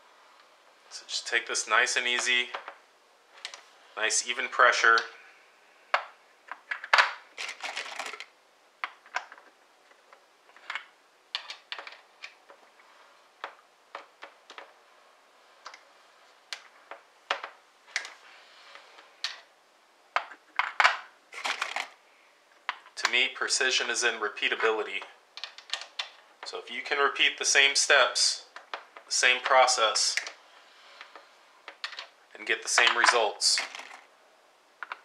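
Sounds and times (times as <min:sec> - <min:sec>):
brass cases clattering: 0:20.2 - 0:22.0, 0:32.7 - 0:34.0.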